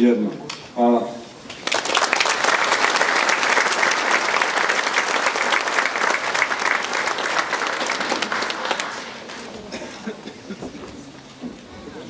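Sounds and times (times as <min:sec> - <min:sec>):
audience applauding: 0:01.5 - 0:09.9.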